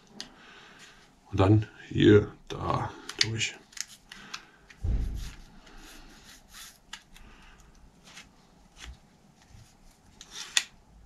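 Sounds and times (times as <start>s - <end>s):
dull thump: 4.8s - 5.5s.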